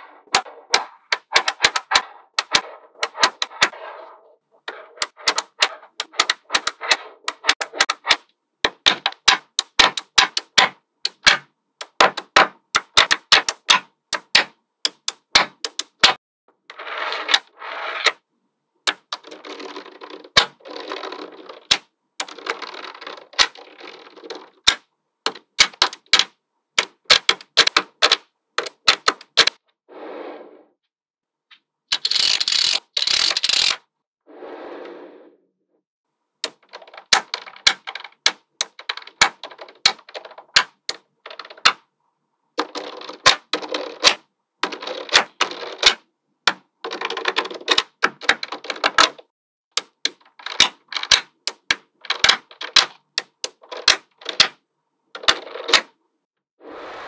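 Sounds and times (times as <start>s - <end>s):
balls rattling and scraping: 0.0s - 18.3s, 18.9s - 29.6s, 31.5s - 33.9s, 36.4s - 41.9s, 42.6s - 54.6s, 55.2s - 56.0s
magnetic balls clicking together: 0.3s - 3.8s, 4.7s - 16.2s, 18.9s - 29.6s, 31.9s - 33.8s, 36.4s - 41.8s, 42.6s - 49.2s, 49.8s - 54.6s.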